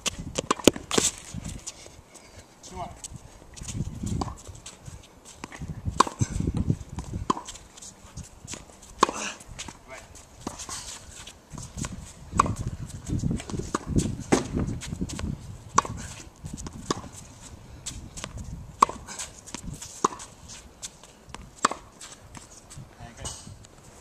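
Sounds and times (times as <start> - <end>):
tennis ball bouncing on court: 0.3 - 1.2, 4.2 - 4.4, 5.4 - 7.5, 8.5 - 9.8, 11.5 - 12.7, 13.4 - 17.2, 18.2 - 20.3, 21.3 - 22.5
tennis ball struck by rackets: 0.4 - 1.2, 4.2 - 4.4, 5.4 - 6.4, 7.0 - 7.5, 8.5 - 9.8, 11.8 - 12.7, 13.4 - 17.1, 18.2 - 20.3, 21.3 - 22.1.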